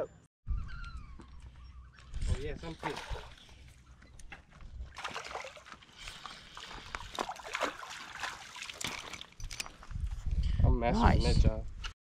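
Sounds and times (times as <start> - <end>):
fish splashing in water: 2.8 - 3.6, 4.9 - 9.4
water dripping: 5.0 - 9.7.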